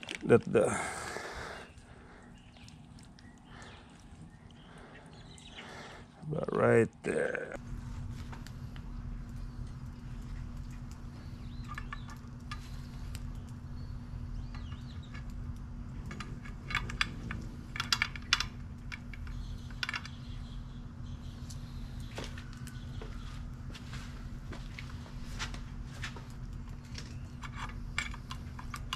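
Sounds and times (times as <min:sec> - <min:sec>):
steady low hum: 0:00.0 - 0:28.9
metal spit clinking and rattling: 0:16.0 - 0:20.4.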